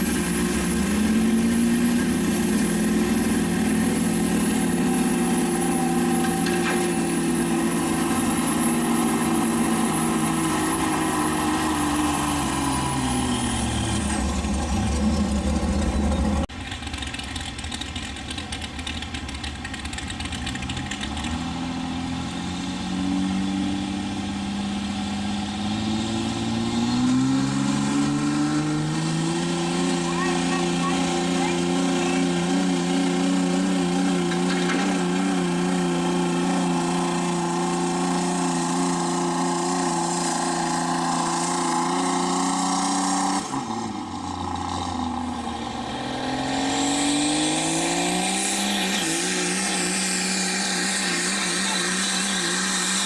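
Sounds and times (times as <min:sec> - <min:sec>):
diesel truck engine at high revs: 0:00.0 - 0:53.0
turbo whistle: 0:07.8 - 0:14.9.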